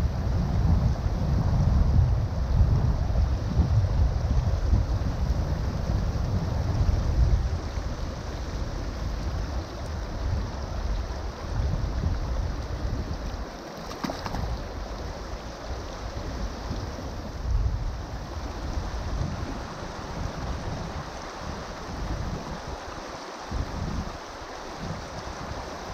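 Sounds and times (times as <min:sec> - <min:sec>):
shallow river current: 0:00.0 - 0:25.9
wind buffeting microphone: 0:00.0 - 0:25.9
water splash: 0:13.6 - 0:14.8.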